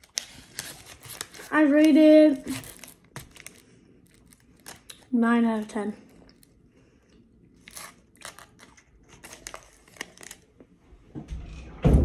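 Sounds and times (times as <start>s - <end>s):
foil wrapper crackling: 0.0s - 6.5s, 7.6s - 10.5s
quiet chewing of chocolate: 2.5s - 5.1s, 5.9s - 10.4s
low bump: 11.2s - 12.0s.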